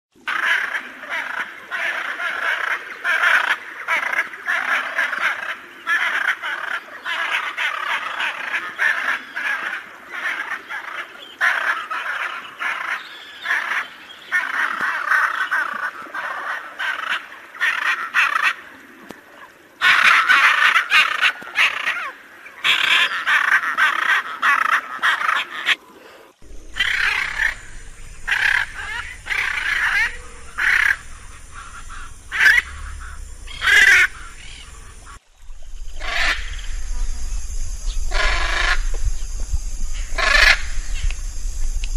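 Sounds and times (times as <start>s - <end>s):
macaw squawking: 26.4s - 37.1s, 37.8s - 38.9s, 40.0s - 41.1s
low rumble: 26.4s - 41.9s.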